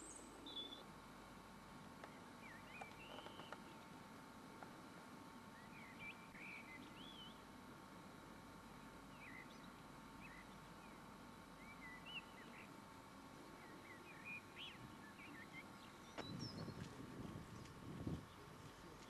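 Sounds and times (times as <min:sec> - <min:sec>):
small birds chirping: 0:00.0 - 0:00.9, 0:02.0 - 0:03.9, 0:05.4 - 0:07.6, 0:08.8 - 0:19.0
faint steady hum: 0:00.0 - 0:19.0.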